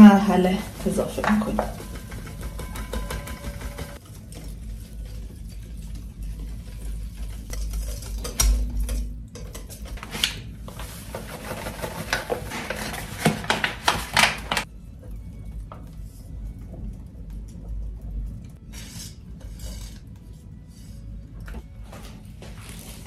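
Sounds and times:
paper flour bag rustling: 0:00.0 - 0:08.4, 0:09.7 - 0:14.7, 0:22.0 - 0:23.0
whisk clicking against bowl: 0:00.8 - 0:04.0.

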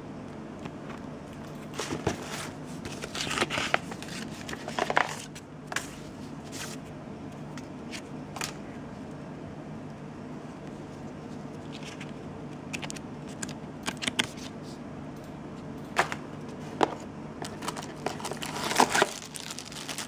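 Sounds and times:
paper and cardboard rustling: 0:01.7 - 0:06.8, 0:16.5 - 0:20.0.

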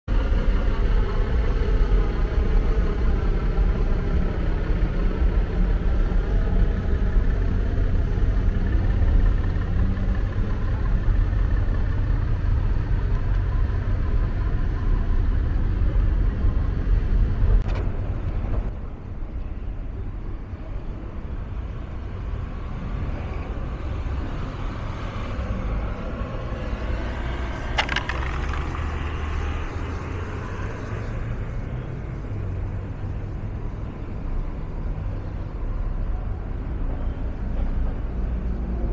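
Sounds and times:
large vehicle engine running: 0:00.1 - 0:19.7, 0:23.7 - 0:34.2
road traffic rumble: 0:00.1 - 0:38.9.

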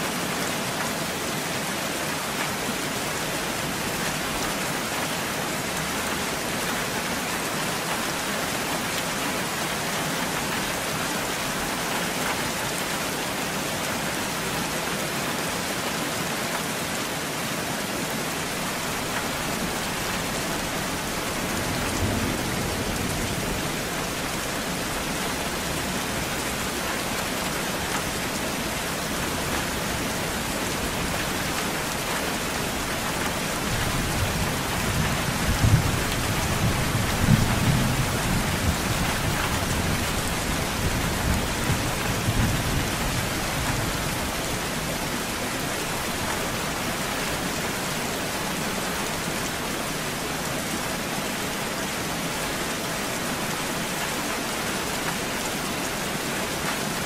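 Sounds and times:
heavy rain: 0:00.0 - 0:57.0
low rumble of thunder: 0:20.2 - 0:26.8, 0:33.6 - 0:44.4.

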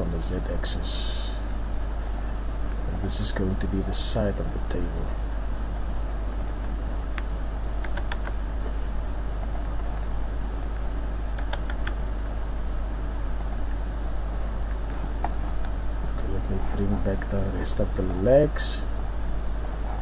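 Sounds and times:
low hum and hiss: 0:00.0 - 0:20.0
computer mouse clicks: 0:02.0 - 0:02.3, 0:05.8 - 0:08.4, 0:09.4 - 0:12.0, 0:13.4 - 0:13.7, 0:19.6 - 0:19.9.

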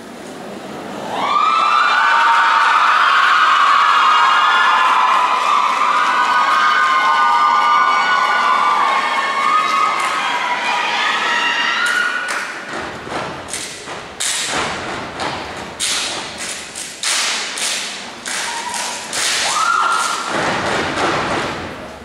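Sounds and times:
group clapping: 0:01.6 - 0:21.7
stomps on wooden stage: 0:12.7 - 0:16.4, 0:20.1 - 0:21.8.

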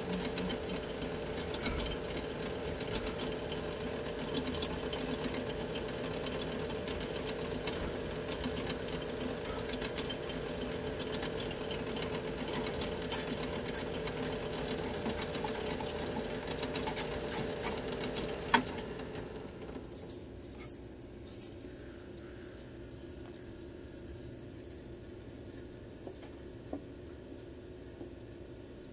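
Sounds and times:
metal lathe humming: 0:00.0 - 0:19.3.

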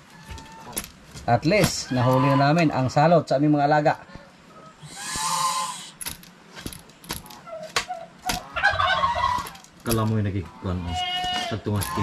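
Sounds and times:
ducks quacking: 0:01.7 - 0:02.9, 0:04.8 - 0:06.0, 0:08.0 - 0:09.6, 0:10.4 - 0:12.0.

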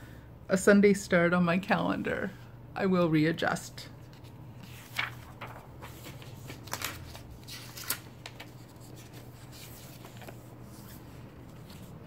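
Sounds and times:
paper sheets rustling: 0:04.0 - 0:12.0.

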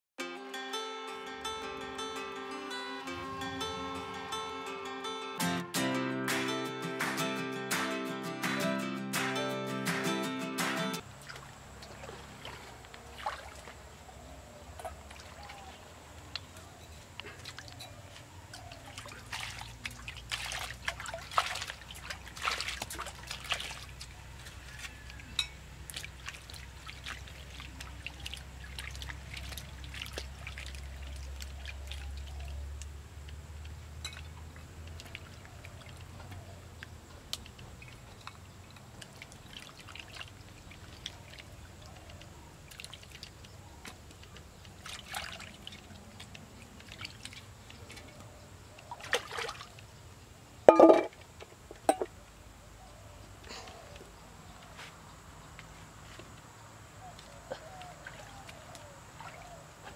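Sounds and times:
stream trickling: 0:11.0 - 0:59.9
hands splashing water in a pot: 0:18.6 - 0:25.1, 0:25.8 - 0:33.0, 0:37.2 - 0:48.2, 0:48.8 - 0:49.8.

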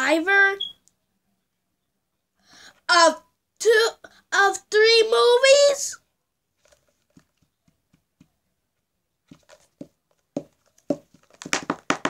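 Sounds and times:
plastic bottle tapping on carpet: 0:09.3 - 0:12.0.

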